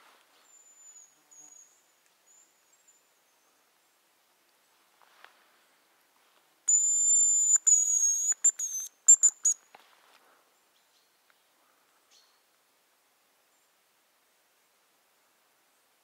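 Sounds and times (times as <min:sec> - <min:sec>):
high decoy whistle: 0:06.7 - 0:09.6.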